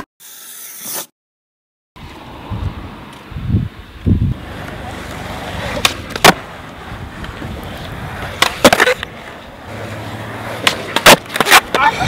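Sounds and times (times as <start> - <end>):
skateboard wheels rolling on concrete: 2.0 - 12.0
skateboard tail clacks: 4.4 - 12.0.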